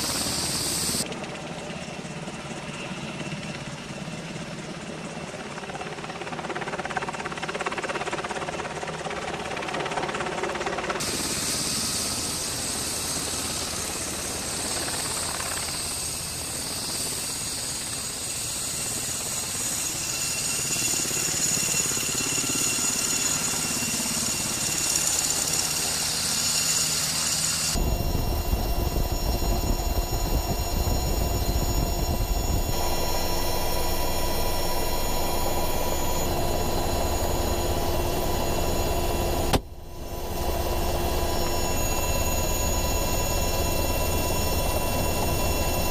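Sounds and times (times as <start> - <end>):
helicopter engine drone: 0.0 - 45.9
helicopter turbine whine and rotor hiss: 0.0 - 45.9
helicopter cabin low rumble: 8.7 - 19.6, 27.8 - 45.9.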